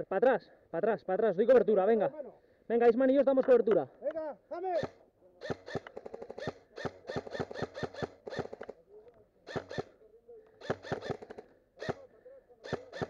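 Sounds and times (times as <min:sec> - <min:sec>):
airsoft rifle rapid firing: 0:04.8 - 0:08.8, 0:09.4 - 0:13.0.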